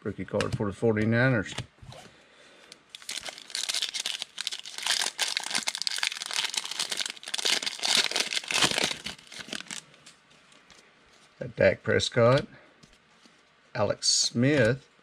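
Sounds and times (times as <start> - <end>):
foil wrapper crinkling and tearing: 2.9 - 9.9.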